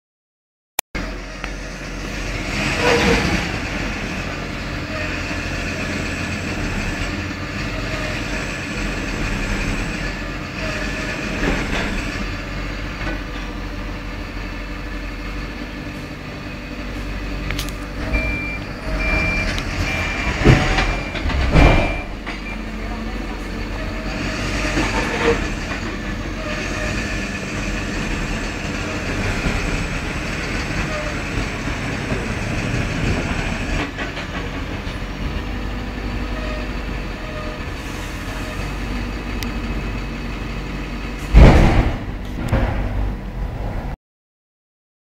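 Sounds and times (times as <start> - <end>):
diesel engines under load: 1.0 - 44.0
high warning beeper: 18.1 - 22.6.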